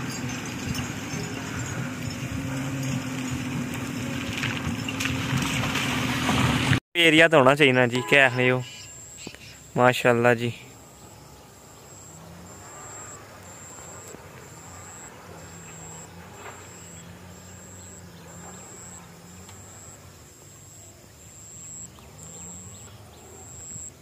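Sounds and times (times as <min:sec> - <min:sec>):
insects chirping: 0:00.0 - 0:04.2, 0:07.5 - 0:24.0
faint engine hum: 0:00.0 - 0:05.2, 0:10.4 - 0:24.0.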